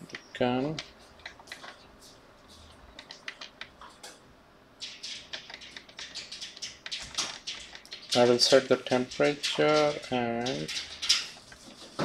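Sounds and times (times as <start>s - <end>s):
small objects clicking and tapping: 4.8s - 12.0s.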